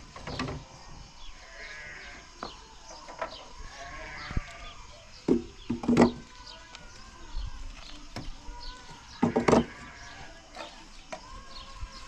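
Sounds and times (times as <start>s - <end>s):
sheep or goats bleating: 1.4s - 2.4s, 3.6s - 4.9s, 6.1s - 10.5s
wooden beehive frames knocking: 5.2s - 6.4s, 8.1s - 10.0s.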